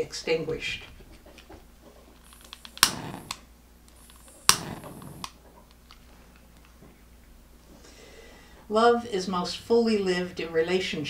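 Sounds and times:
utility lighter clicking: 2.2s - 5.4s.

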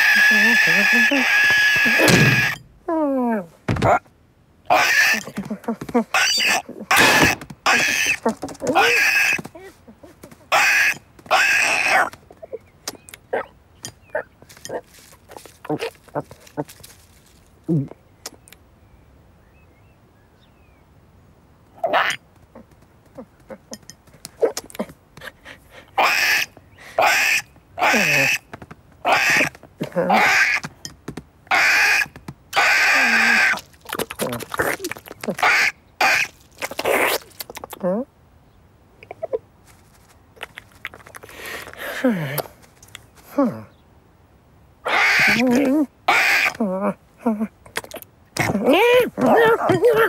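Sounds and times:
short rustle: 14.4s - 17.7s, 39.6s - 41.8s
cat-like vocal sounds: 44.9s - 50.0s.

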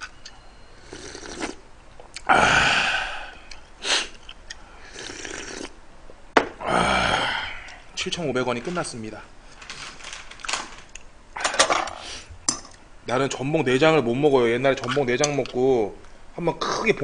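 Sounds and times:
man slurping broth: 0.8s - 1.6s, 2.2s - 4.2s, 4.8s - 5.8s
man exhaling loudly: 2.3s - 4.1s, 6.6s - 7.8s.

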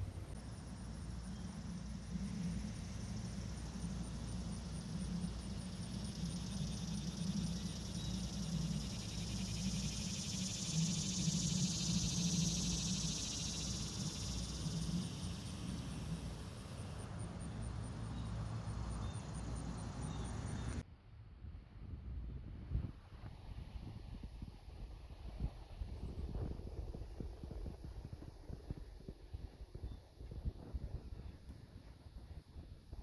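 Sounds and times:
insects buzzing: 0.0s - 20.8s.

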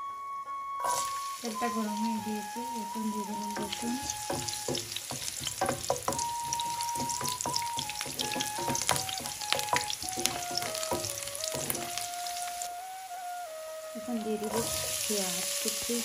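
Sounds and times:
garlic sizzling in oil: 0.8s - 16.0s
spatula scraping a pan: 3.3s - 12.6s.

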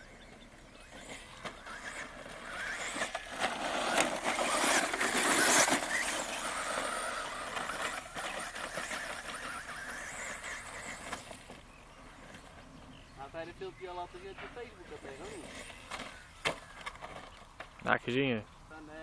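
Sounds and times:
rc truck motor whine: 0.0s - 13.2s, 14.8s - 17.6s
tyres on loose sand: 1.0s - 11.5s.

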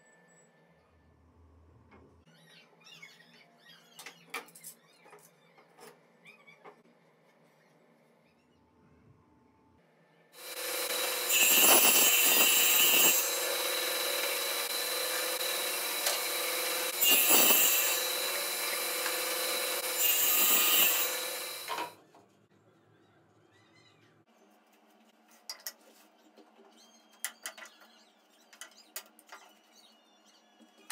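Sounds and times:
table saw cutting plywood: 10.4s - 21.9s.

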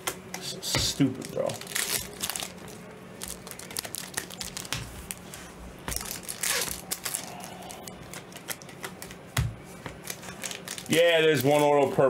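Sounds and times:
foil wrapper crinkling and tearing: 0.9s - 12.0s.

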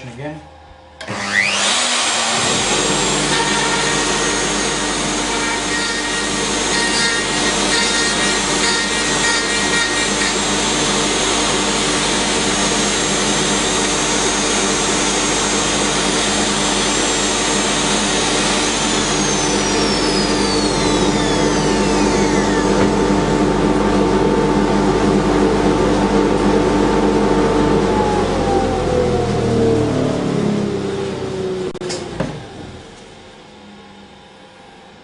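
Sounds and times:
dust collector running: 0.0s - 35.0s
router cutting wood: 1.0s - 24.8s.

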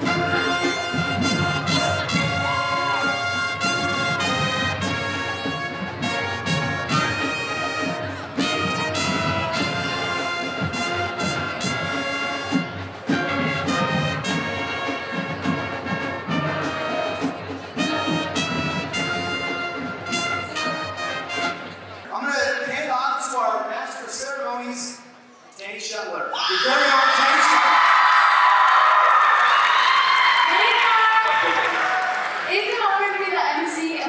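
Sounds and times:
brass band playing sustained notes: 0.0s - 22.1s.

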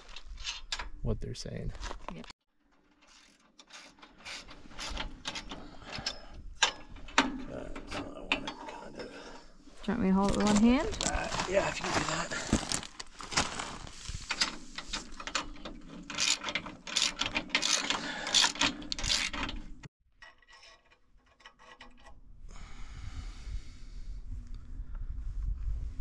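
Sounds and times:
ratchet wrench clicking: 16.2s - 19.4s.

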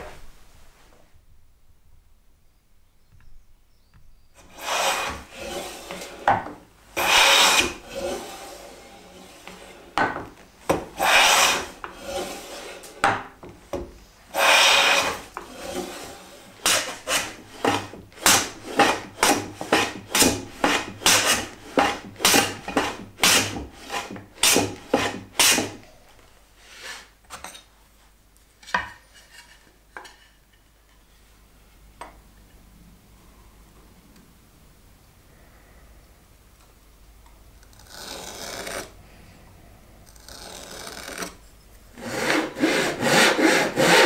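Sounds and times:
hand plane cutting wood: 4.4s - 6.4s, 7.0s - 10.1s, 10.7s - 13.0s, 14.3s - 25.8s, 37.7s - 38.9s, 42.0s - 44.0s
wood knocking: 10.0s - 10.9s.

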